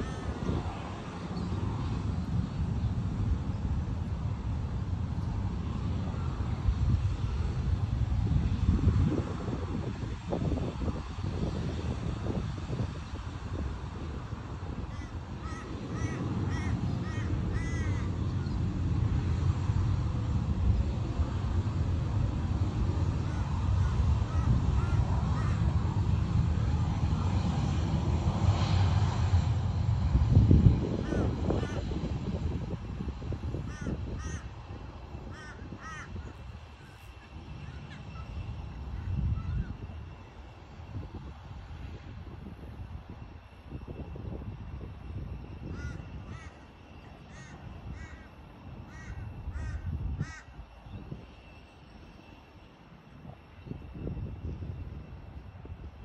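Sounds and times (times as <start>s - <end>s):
crow cawing: 0.0s - 0.3s, 14.9s - 18.1s, 23.3s - 25.6s, 31.0s - 31.8s, 33.7s - 34.5s, 35.3s - 38.2s, 45.7s - 46.6s, 47.3s - 50.6s
distant jet engines rumbling: 0.0s - 56.0s.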